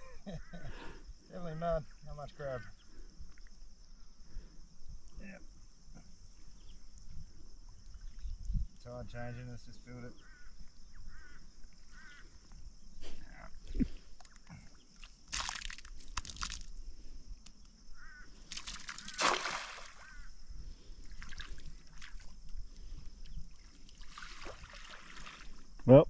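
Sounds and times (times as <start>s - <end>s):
bird calls: 9.8s - 15.0s, 17.6s - 20.9s
river water splashing: 18.5s - 20.2s, 21.0s - 25.7s.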